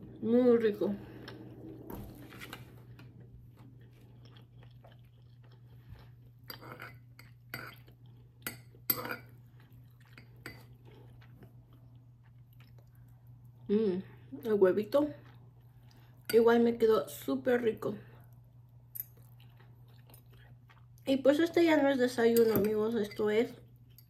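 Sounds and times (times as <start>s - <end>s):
faint steady hum: 0.0s - 24.0s
quiet chewing: 1.1s - 13.7s, 15.0s - 16.3s, 18.2s - 21.1s.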